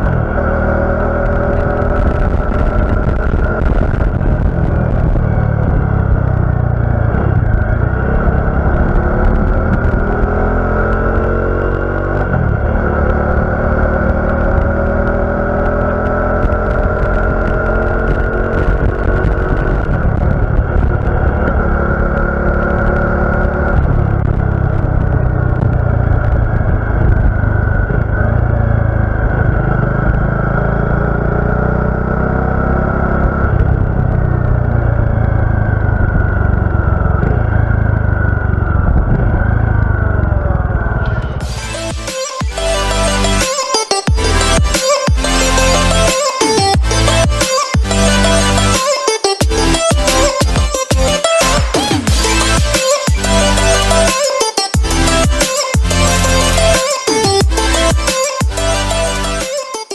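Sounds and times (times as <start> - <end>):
motorcycle engine accelerating: 0.0 - 59.5.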